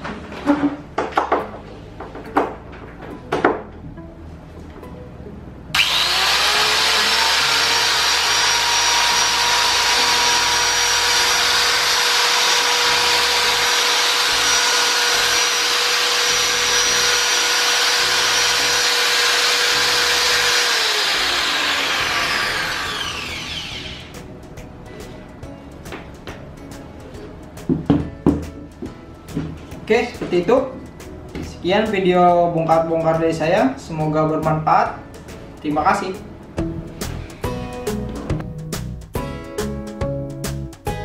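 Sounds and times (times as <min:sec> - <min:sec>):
angle grinder whining: 0:05.8 - 0:24.2.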